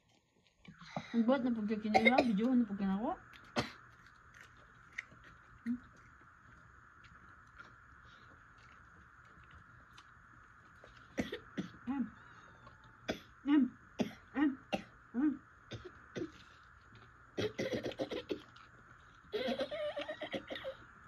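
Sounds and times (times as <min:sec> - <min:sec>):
person coughing: 0:01.9 - 0:02.5, 0:17.4 - 0:18.4, 0:19.3 - 0:20.8.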